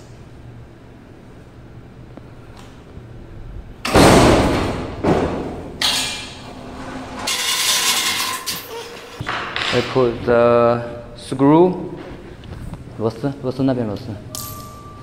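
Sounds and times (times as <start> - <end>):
heavy machine thud: 3.8 - 5.8
metal knocks: 3.9 - 6.4.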